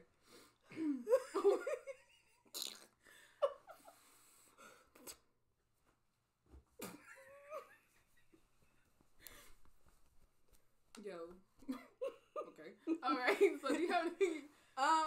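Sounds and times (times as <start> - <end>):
women laughing: 0.8 - 2.3, 6.8 - 8.5.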